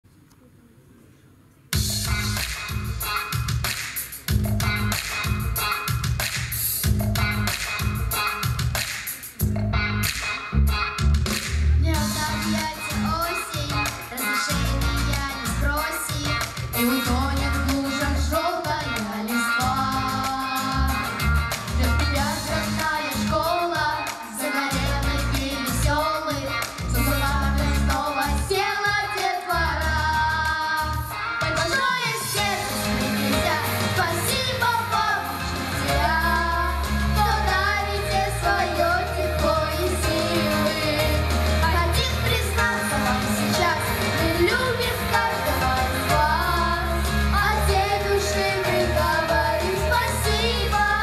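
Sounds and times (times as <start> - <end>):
backing music with bass line: 1.8 - 51.0
children singing into microphones: 12.0 - 51.0.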